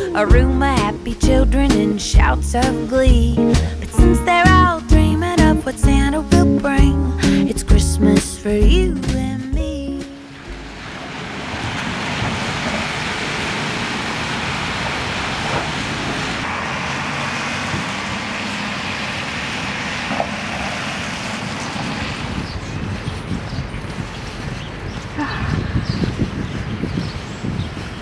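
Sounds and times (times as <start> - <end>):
cars passing on wet road: 10.2 - 28.0.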